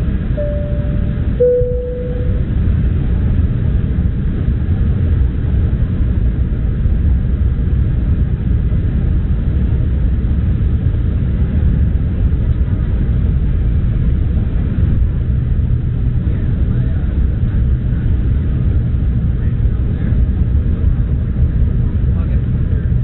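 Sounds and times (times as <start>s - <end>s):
jet cabin rumble: 0.0s - 23.0s.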